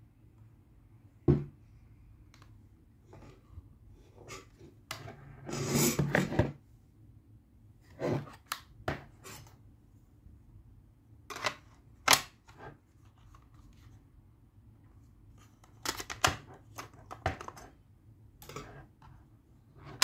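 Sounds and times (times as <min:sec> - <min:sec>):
plastic knock: 0:01.3 - 0:01.5.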